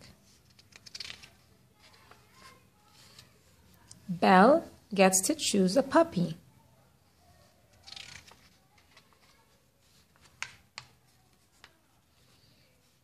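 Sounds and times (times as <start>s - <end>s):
paper page turning: 0.0s - 3.5s, 7.7s - 12.7s.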